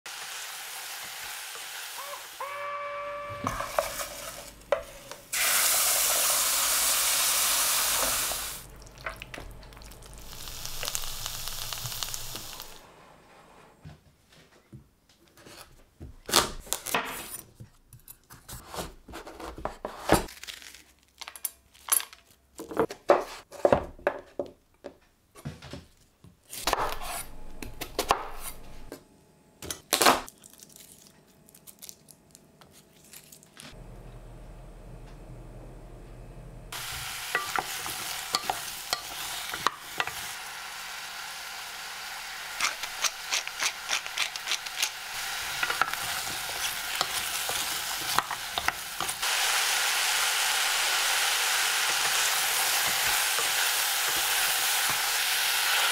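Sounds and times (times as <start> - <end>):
food sizzling in a pot: 0.1 - 12.8, 36.7 - 55.9
wooden spoon scraping a pot: 3.4 - 5.2
knife slicing onion: 26.5 - 28.6, 42.5 - 49.2.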